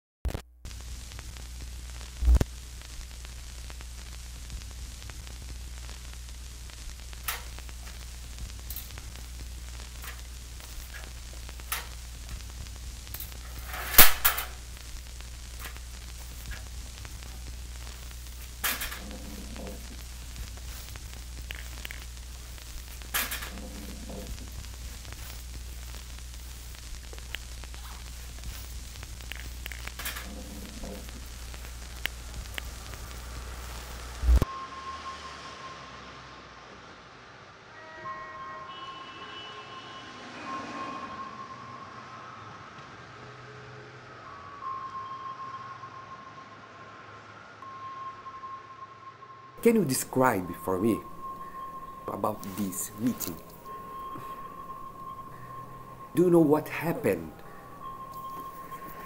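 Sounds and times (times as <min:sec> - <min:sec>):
film crackles and pops: 0:00.2 - 0:34.5, 0:49.6 - 0:59.0
film hiss: 0:00.3 - 0:34.5, 0:49.6 - 0:59.0
low hum: 0:00.7 - 0:37.0, 0:45.8 - 0:59.0
noisy scrape: 0:13.2 - 0:14.7, 0:15.5 - 0:34.4.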